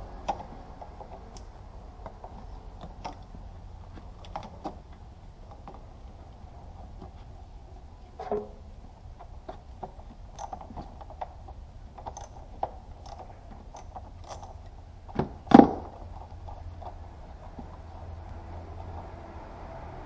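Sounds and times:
small clicks of connectors: 0.2 - 3.3.

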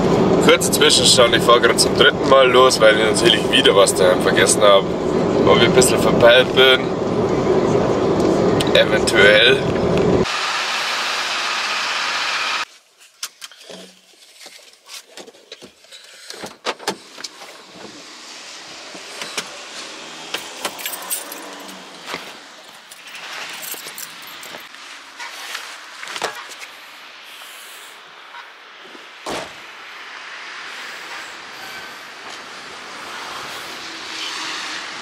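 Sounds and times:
clicks knocks and metallic jingles: 20.3 - 24.7.

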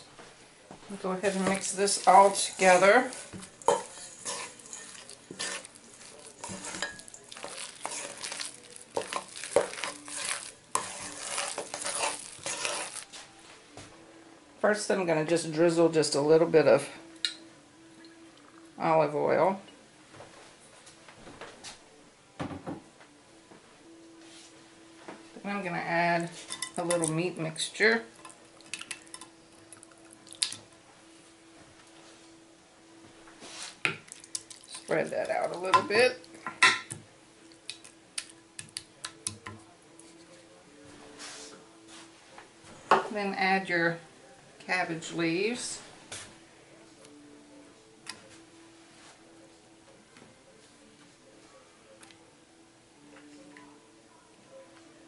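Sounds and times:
wet squishing and scraping: 1.2 - 13.2, 29.8 - 30.6.

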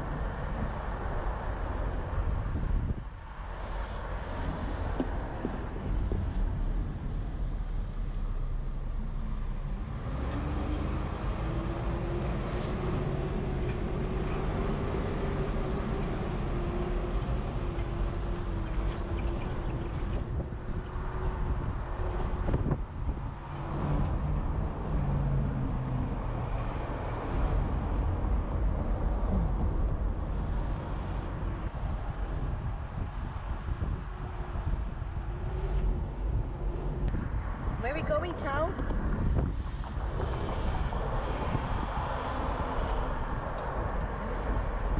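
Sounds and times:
wind rushing past: 38.8 - 44.2.

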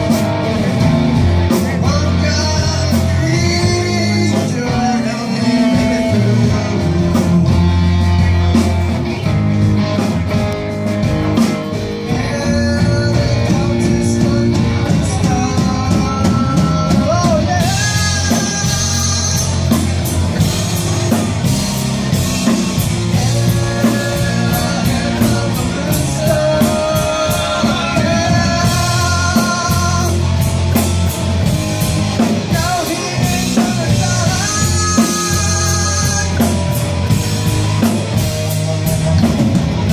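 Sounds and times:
man singing: 0.0 - 7.7, 11.8 - 20.5, 22.1 - 31.0, 32.2 - 37.1
drum kit: 0.0 - 39.9
electric bass: 0.0 - 39.9
electric guitars: 0.0 - 39.9.

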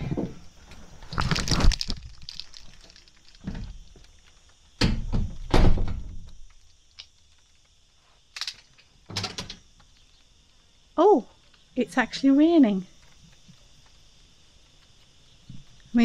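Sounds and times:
rustles and knocks: 0.0 - 7.8
door shutting with heavy thunks: 4.8 - 6.2.

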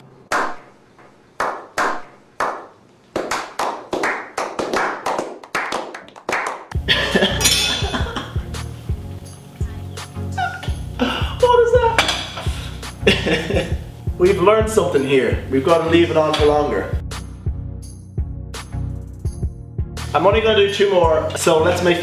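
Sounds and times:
hand claps: 0.3 - 6.8
background music: 4.8 - 22.0.

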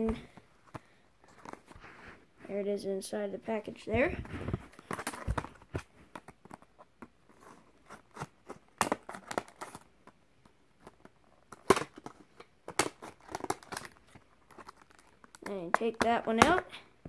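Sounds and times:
plastic packaging crinkling: 11.0 - 15.9
plastic packaging snapping: 11.5 - 15.9.

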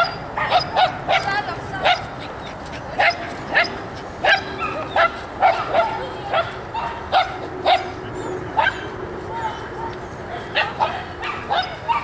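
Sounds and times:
dog barking: 0.4 - 2.0, 3.0 - 7.9, 10.4 - 12.0.

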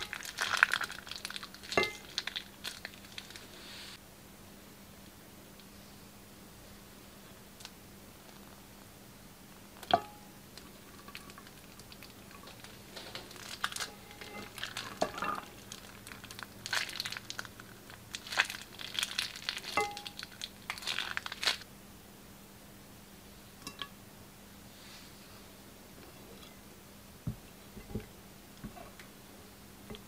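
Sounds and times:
plastic bag crinkling: 0.0 - 3.6, 10.6 - 21.6.

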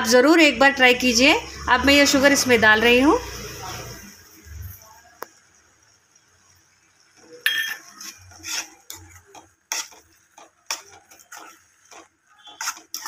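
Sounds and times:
spatula scraping and clinking on pan: 7.2 - 13.0.

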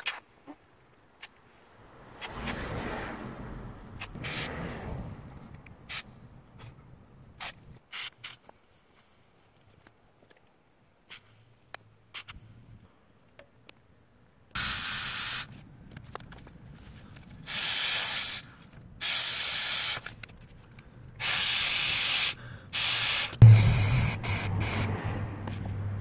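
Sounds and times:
aerosol can hissing: 14.6 - 15.5, 17.5 - 18.4, 19.0 - 20.0, 21.2 - 24.9
loud knock: 23.4 - 25.3.

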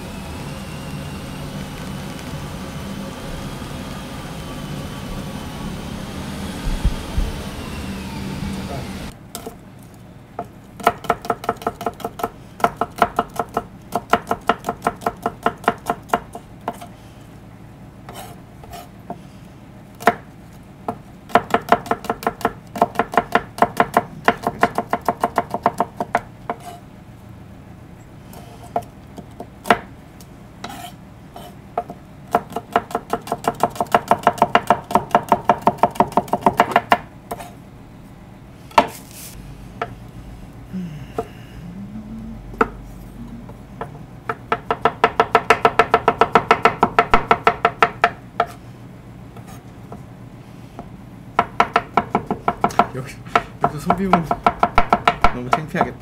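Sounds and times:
knife chopping food: 10.4 - 16.9, 20.9 - 26.8, 30.6 - 37.5, 51.4 - 56.0.

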